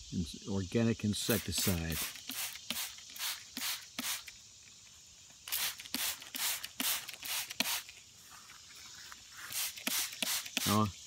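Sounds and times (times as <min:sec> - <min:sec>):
spray bottle spraying: 0:01.2 - 0:04.4, 0:05.4 - 0:08.0, 0:09.4 - 0:10.9.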